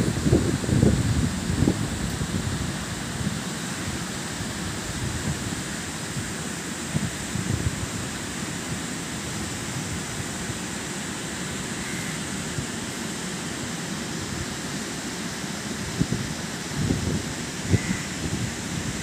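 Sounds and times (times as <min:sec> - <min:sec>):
wind buffeting microphone: 0:00.0 - 0:04.0, 0:15.8 - 0:19.0.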